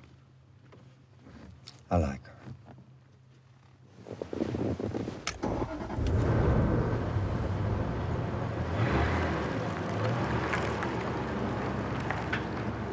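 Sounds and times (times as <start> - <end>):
road and tyre noise: 5.0 - 12.9
car engine humming: 5.3 - 12.9.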